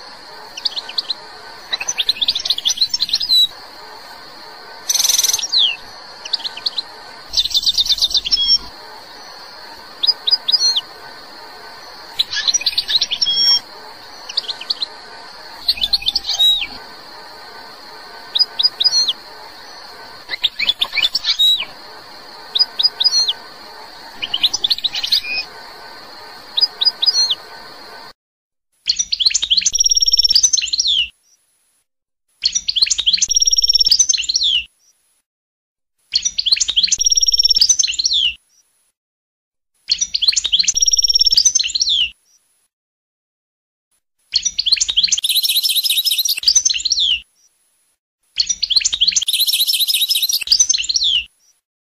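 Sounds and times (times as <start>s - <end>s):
faint steady hiss: 0.0s - 28.1s
goldfinch singing: 4.9s - 28.0s.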